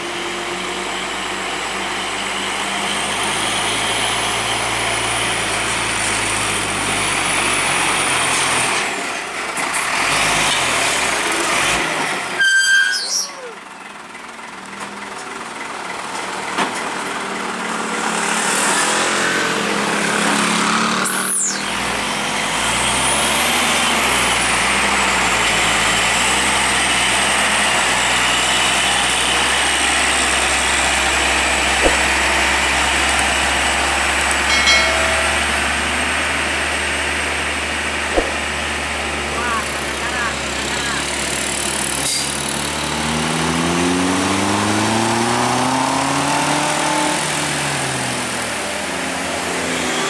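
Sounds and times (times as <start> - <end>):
truck diesel engine under load: 0.0 - 50.0
thin high whistle: 21.1 - 21.7.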